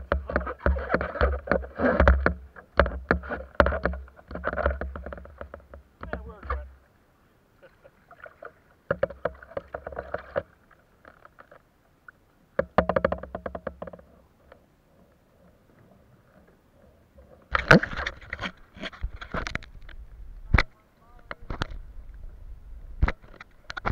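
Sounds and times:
rubbing and knocking on camera: 0:00.0 - 0:06.6, 0:17.2 - 0:20.7
kayak paddle splashing water: 0:00.0 - 0:19.6.

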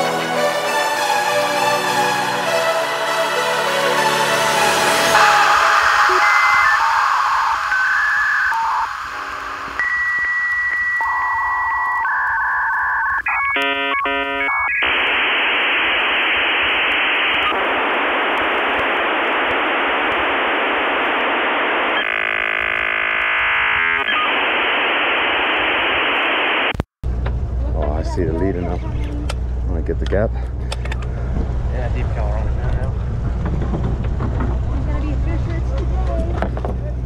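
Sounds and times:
dial-up modem handshake: 0:06.0 - 0:15.2.

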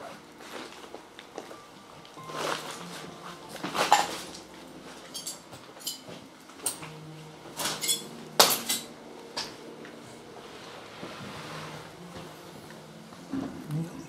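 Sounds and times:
glassy ring: 0:05.0 - 0:06.8, 0:07.6 - 0:08.9.

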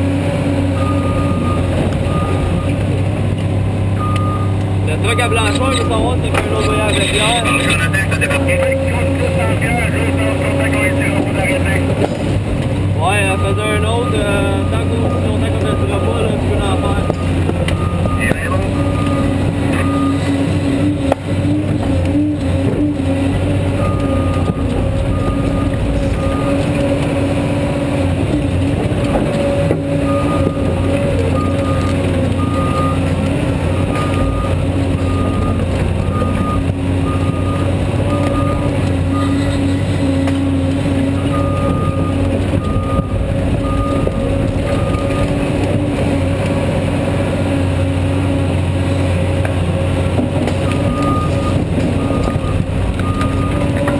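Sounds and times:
excavator engine and hydraulics: 0:00.0 - 0:53.9
backup alarm beeping: 0:00.8 - 0:02.8, 0:04.0 - 0:08.2, 0:13.1 - 0:20.4, 0:23.8 - 0:26.8, 0:30.0 - 0:33.1, 0:33.7 - 0:39.7, 0:41.1 - 0:45.4, 0:50.6 - 0:53.9.

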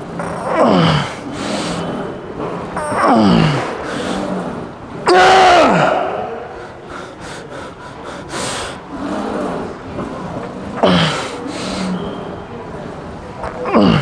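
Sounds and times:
man grunting: 0:02.8 - 0:06.6, 0:13.6 - 0:14.0
man breathing hard: 0:06.5 - 0:09.3.

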